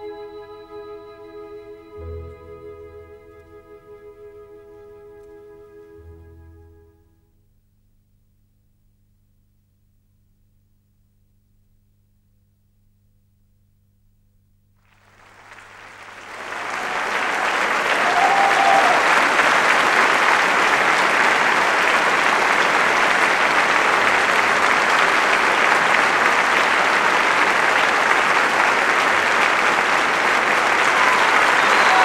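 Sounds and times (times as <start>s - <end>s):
audience applauding: 14.8s - 32.0s.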